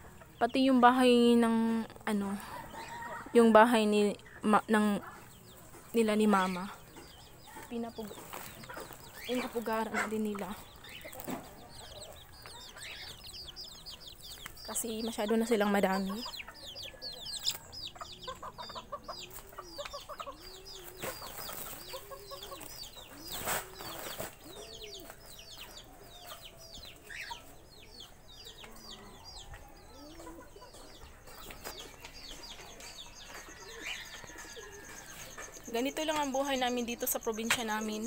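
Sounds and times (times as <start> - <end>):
birds peeping: 0.0 - 38.0
pigeons cooing: 5.0 - 14.4, 16.0 - 36.2.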